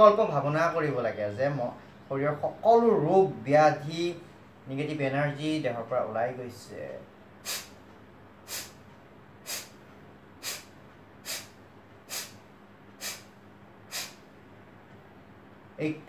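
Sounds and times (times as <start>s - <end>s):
forceful nasal exhalations: 7.4s - 7.8s, 8.4s - 8.8s, 9.4s - 9.8s, 10.4s - 14.3s.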